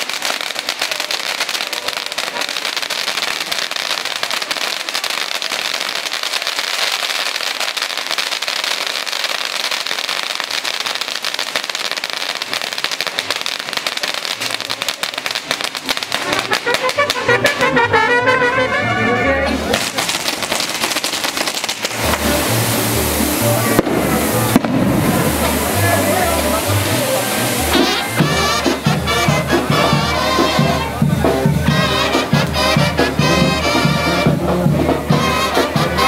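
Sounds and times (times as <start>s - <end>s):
rapid fireworks pops: 0.0s - 17.8s, 19.6s - 36.0s
fireworks hissing and crackling: 0.0s - 17.9s, 18.7s - 36.0s
brass band playing: 15.2s - 36.0s.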